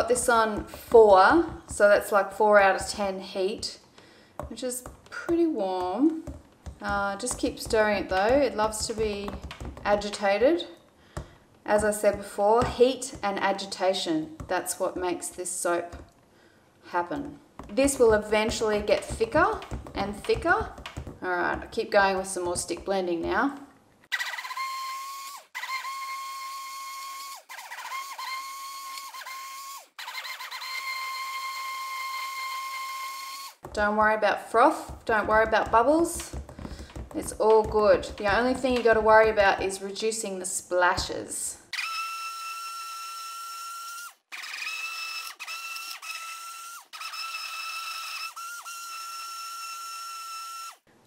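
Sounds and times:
stick blender motor whining: 0:24.1 - 0:33.6, 0:41.7 - 0:50.8
stick blender whining: 0:41.7 - 0:50.8.

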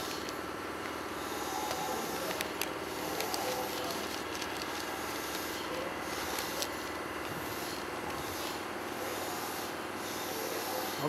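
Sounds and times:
newspaper rustling and crinkling: 0:00.0 - 0:08.7
background hum: 0:00.0 - 0:11.0.

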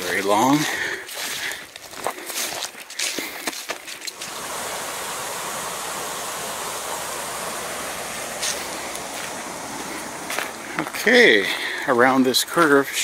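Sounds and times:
footsteps: 0:00.0 - 0:04.3, 0:08.3 - 0:13.0
running water: 0:03.8 - 0:13.0.

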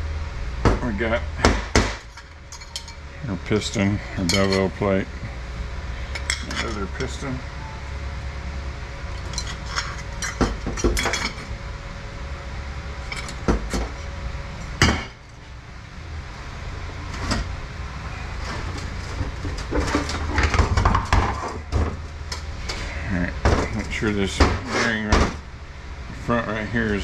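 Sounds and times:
steady low hum: 0:00.0 - 0:27.0
metal parts clinking and knocking: 0:02.1 - 0:03.0, 0:09.1 - 0:11.5, 0:13.0 - 0:13.9.

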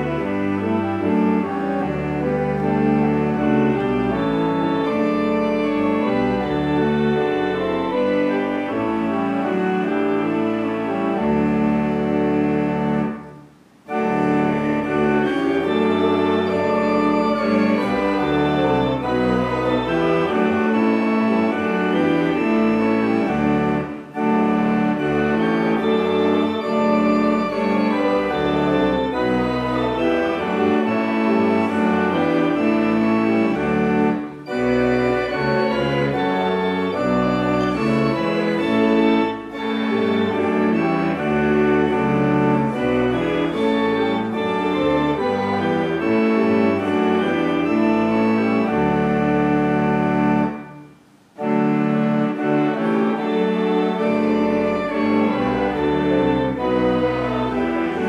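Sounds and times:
organ playing hymn chords: 0:00.0 - 0:58.0.

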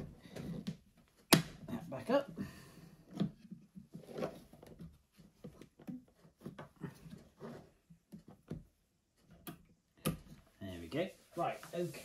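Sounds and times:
soft handling knocks and rubs: 0:03.0 - 0:12.0.

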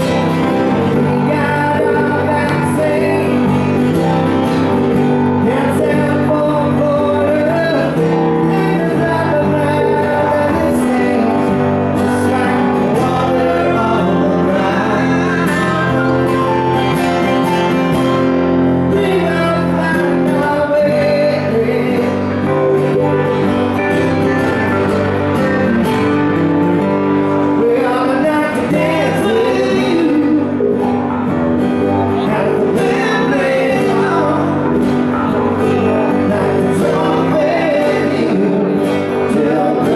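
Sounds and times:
man singing: 0:00.0 - 0:26.3, 0:27.2 - 0:39.9
acoustic guitars playing: 0:00.0 - 0:39.9.

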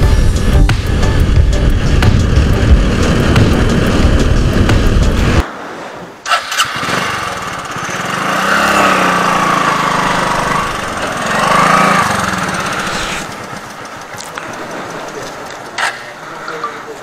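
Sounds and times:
motorcycle engine revving: 0:00.0 - 0:05.4, 0:06.3 - 0:16.3
sharp clicks: 0:13.2 - 0:16.2.

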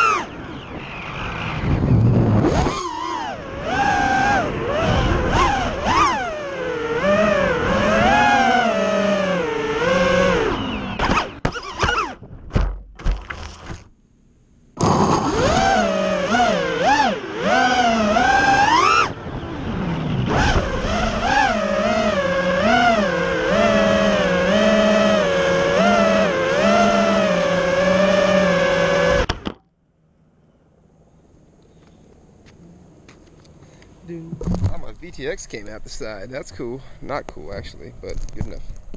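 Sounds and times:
drone motors whining: 0:00.0 - 0:12.5, 0:14.8 - 0:29.6
drone hitting the ground: 0:14.8 - 0:15.6, 0:34.3 - 0:35.3.

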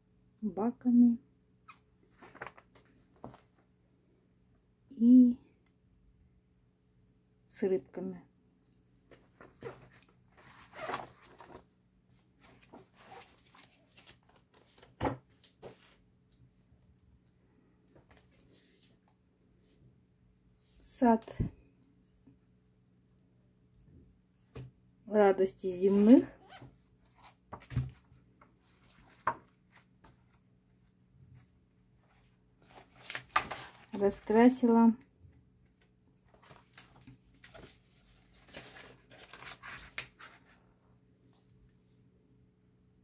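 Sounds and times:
paper pages rustling: 0:02.1 - 0:03.6, 0:09.1 - 0:11.7, 0:12.4 - 0:16.0, 0:25.9 - 0:30.4, 0:31.4 - 0:34.4, 0:36.3 - 0:40.6.

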